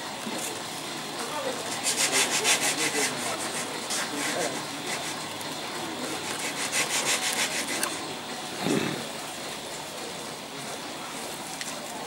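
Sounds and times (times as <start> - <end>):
stylus scratching lacquer: 1.6 - 5.3, 6.1 - 8.0.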